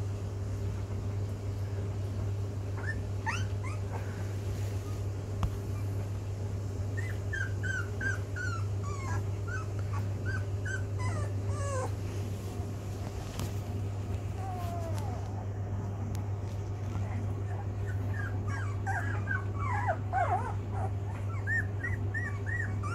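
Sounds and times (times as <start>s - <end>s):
puppies whining: 2.7s - 6.1s, 6.8s - 12.3s, 14.0s - 15.6s, 17.1s - 22.9s.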